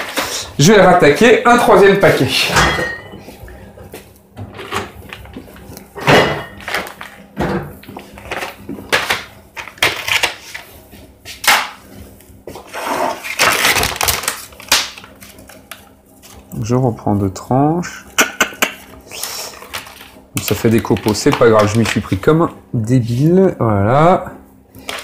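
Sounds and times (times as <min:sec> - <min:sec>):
plastic packet crinkling: 0:13.2 - 0:16.5, 0:19.2 - 0:22.4.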